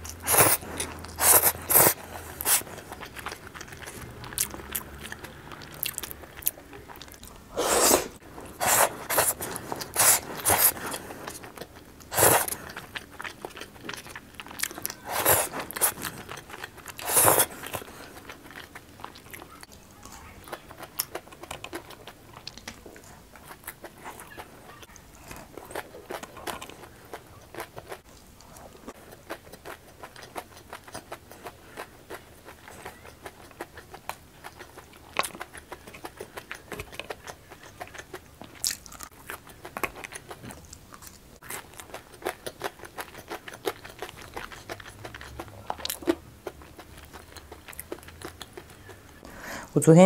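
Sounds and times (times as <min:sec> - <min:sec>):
person chewing food: 0:00.0 - 0:49.4
loud mouth bursts: 0:07.5 - 0:09.3.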